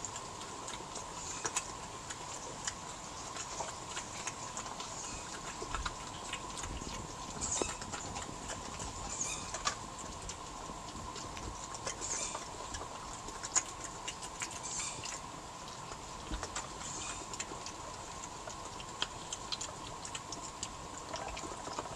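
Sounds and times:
badgers crunching nuts: 0:00.0 - 0:21.9.

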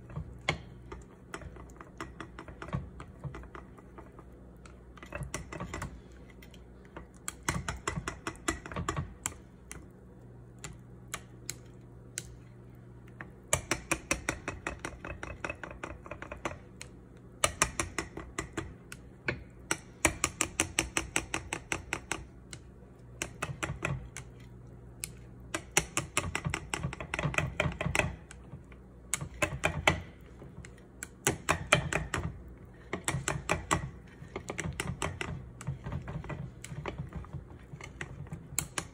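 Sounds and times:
chopsticks whisking in glass bowl: 0:00.0 - 0:09.8, 0:20.0 - 0:38.9.

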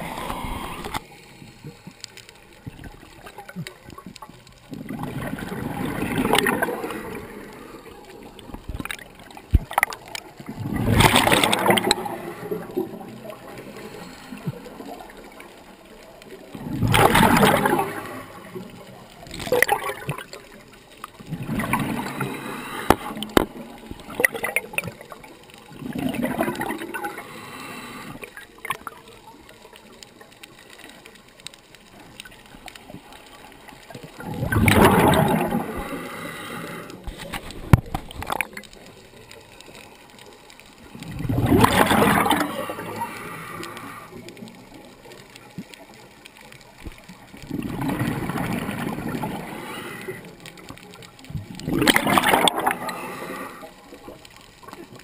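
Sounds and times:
gurgling exhaled bubbles: 0:00.0 - 0:01.0, 0:02.6 - 0:30.1, 0:32.1 - 0:39.7, 0:40.7 - 0:55.0
scuba regulator breathing underwater: 0:00.0 - 0:02.1, 0:10.6 - 0:15.1, 0:21.5 - 0:23.6, 0:25.9 - 0:28.4, 0:34.4 - 0:37.6, 0:41.6 - 0:44.3, 0:47.6 - 0:50.4, 0:51.7 - 0:53.9.

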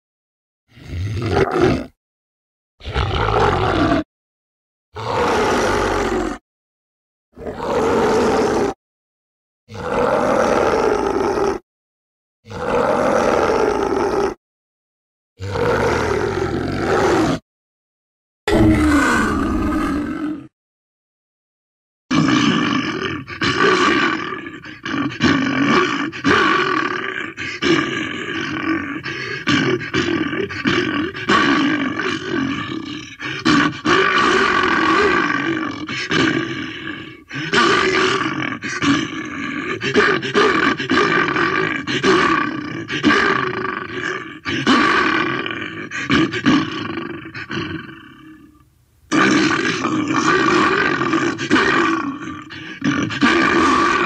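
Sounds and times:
creature calls: 0:05.0 - 0:06.4, 0:18.5 - 0:20.5, 0:22.1 - 0:54.0.

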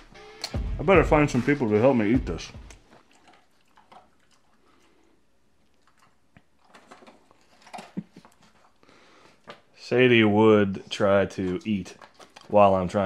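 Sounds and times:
faint clicks and taps: 0:09.3 - 0:09.7.

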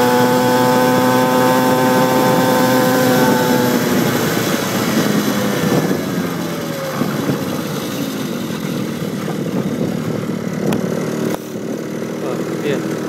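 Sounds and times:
wind noise on microphone: 0:00.0 - 0:11.0
small motorbike engine running: 0:00.0 - 0:13.0.

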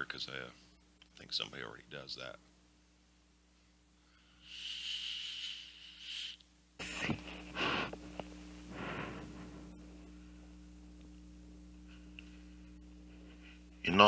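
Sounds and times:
breathy puffs exhaling vapour: 0:04.2 - 0:09.7
hissing e-cigarette draw with whistle: 0:04.3 - 0:08.0.

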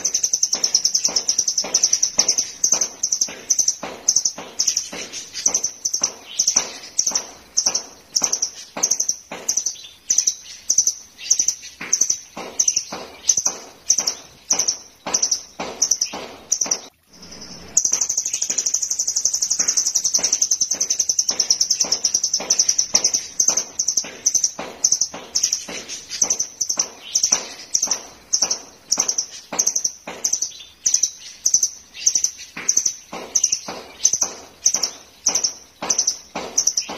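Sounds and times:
continuous high bird trill: 0:00.0 - 0:36.9
bird calling sharp high notes: 0:11.3 - 0:30.4.

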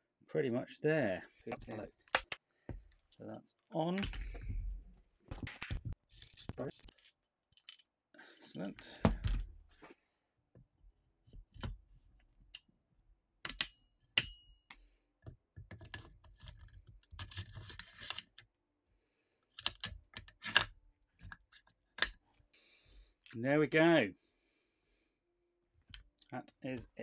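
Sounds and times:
metal rifle parts clicking: 0:06.2 - 0:07.9.

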